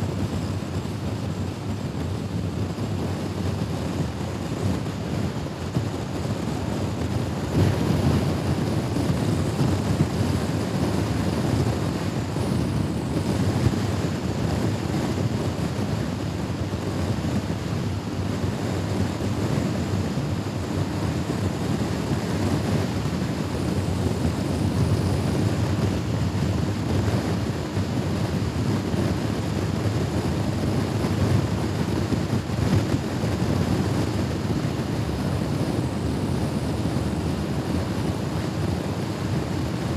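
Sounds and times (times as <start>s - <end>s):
wind on microphone: 0.0s - 39.9s.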